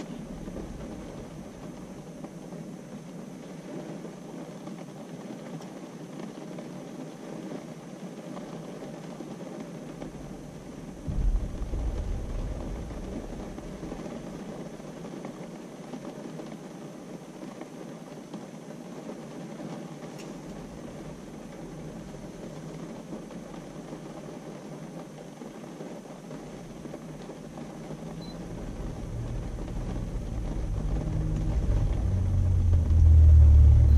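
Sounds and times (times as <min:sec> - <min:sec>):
low rumble: 0:00.0 - 0:02.5, 0:10.0 - 0:15.1, 0:20.3 - 0:24.1, 0:26.4 - 0:33.9
tyres hissing on wet road: 0:00.0 - 0:33.9.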